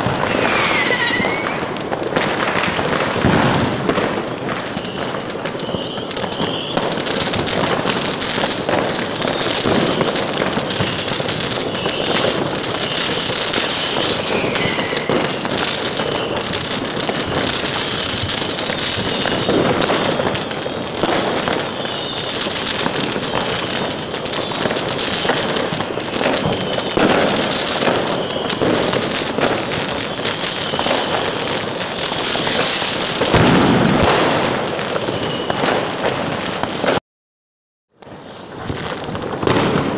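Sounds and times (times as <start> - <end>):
firework whistles: 0.0 - 37.0, 38.0 - 39.9
fireworks bangs and crackling: 0.0 - 37.0, 38.0 - 39.9.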